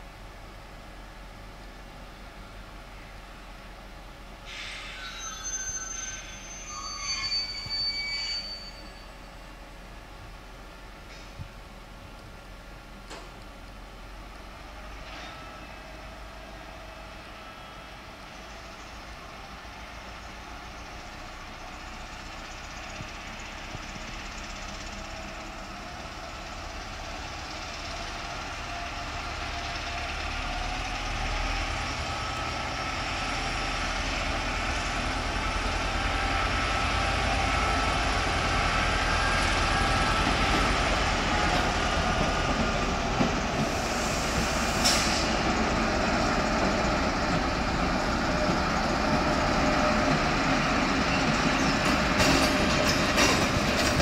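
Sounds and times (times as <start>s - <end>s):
diesel locomotive hauling train: 0.0s - 54.0s.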